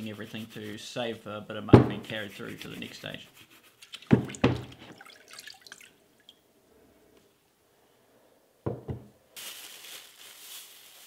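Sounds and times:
plastic bag crinkling: 0:09.3 - 0:11.0.

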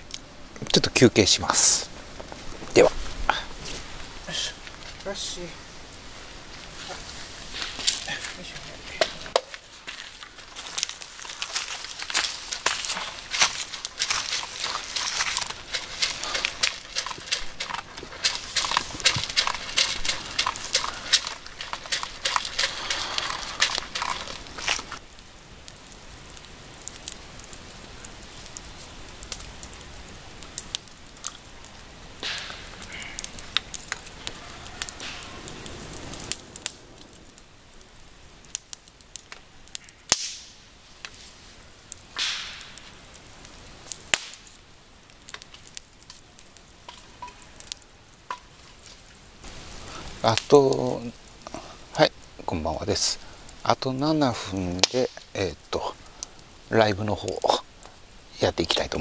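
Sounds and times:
campfire crackling and popping: 0:00.0 - 0:59.0
dogs crunching dry kibble: 0:07.7 - 0:25.0.

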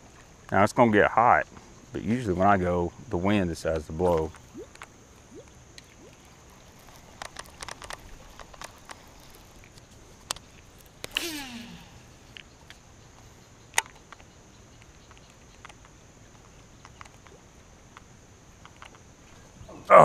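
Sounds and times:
reel spool whirring: 0:05.8 - 0:12.5
fishing reel click: 0:06.5 - 0:12.8.

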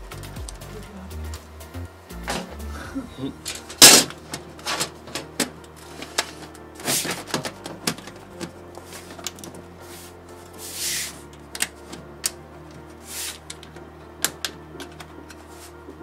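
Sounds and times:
background music with bass: 0:00.0 - 0:16.0
panel scraping slides: 0:03.4 - 0:16.0.

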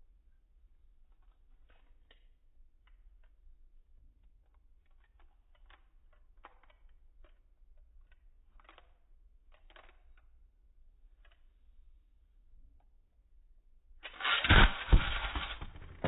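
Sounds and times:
faint irregular clicks: 0:00.8 - 0:13.0.

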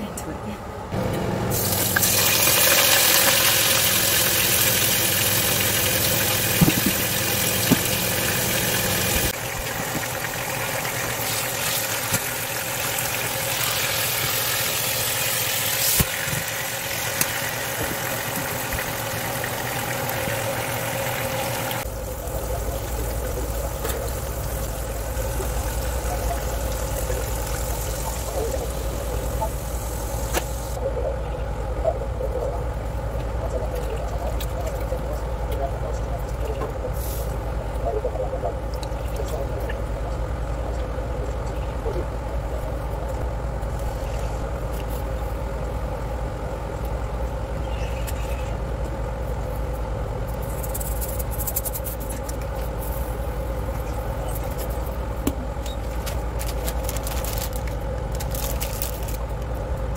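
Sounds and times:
low steady hum: 0:00.0 - 0:59.9
meat sizzling in oil: 0:01.6 - 0:30.8.

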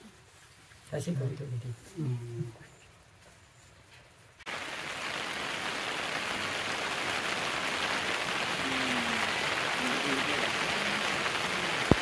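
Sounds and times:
rushing water hiss: 0:04.5 - 0:12.0.

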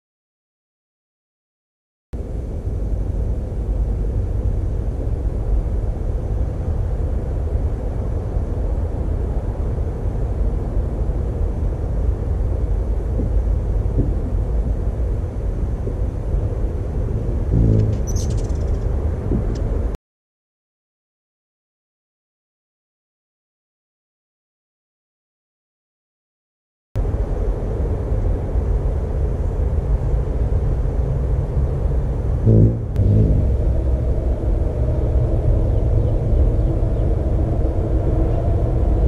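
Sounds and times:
low outdoor rumble: 0:02.2 - 0:20.0, 0:27.0 - 0:39.0
hummingbird wings buzzing: 0:17.1 - 0:18.8, 0:32.5 - 0:33.9
short high bird chip: 0:17.6 - 0:18.8.

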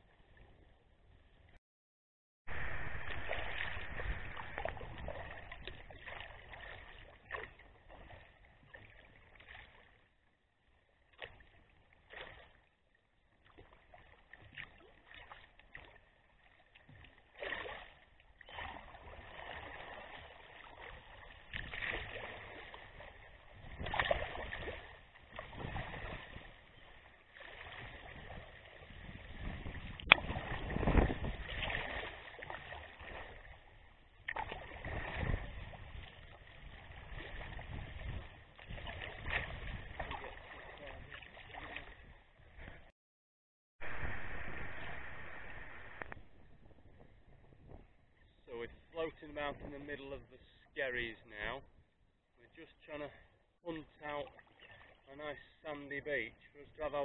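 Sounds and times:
water splashing against kayak: 0:02.5 - 0:42.9, 0:52.4 - 0:57.0.

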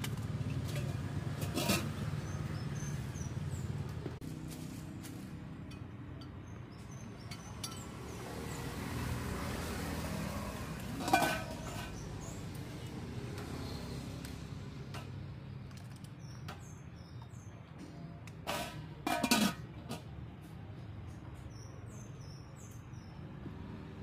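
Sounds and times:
street background noise: 0:00.0 - 0:24.0
pot lid and ladle clinking: 0:00.7 - 0:02.0, 0:11.0 - 0:12.0, 0:18.4 - 0:20.1
metal clank: 0:11.0 - 0:12.0, 0:18.4 - 0:20.1.

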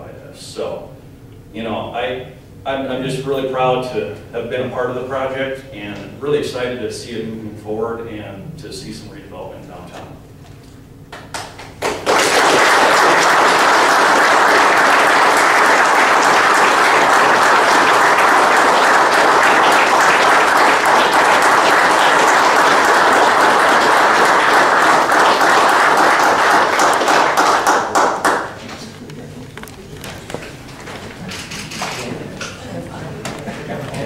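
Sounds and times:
audience applauding: 0:11.1 - 0:30.4.

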